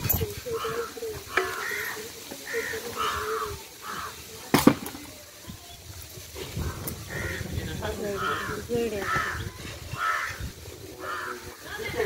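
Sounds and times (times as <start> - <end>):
crows cawing: 0.4 - 4.3, 6.6 - 11.7.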